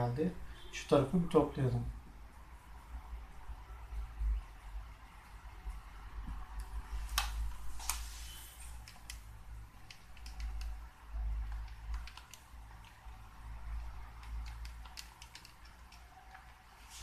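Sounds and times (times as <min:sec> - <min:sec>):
calculator keys clicking: 0:09.8 - 0:10.8, 0:11.4 - 0:13.0, 0:14.1 - 0:16.6.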